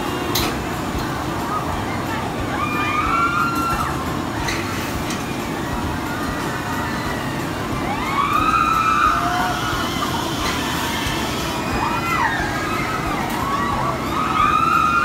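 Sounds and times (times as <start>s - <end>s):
amusement park din: 0.0s - 15.0s
riders screaming: 5.7s - 15.0s.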